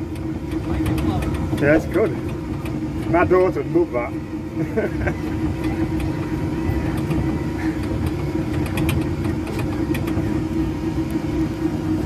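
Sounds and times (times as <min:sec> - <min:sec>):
light clicks and rattles: 0:00.0 - 0:03.5, 0:05.6 - 0:10.5
ride vehicle motor humming: 0:00.0 - 0:12.0.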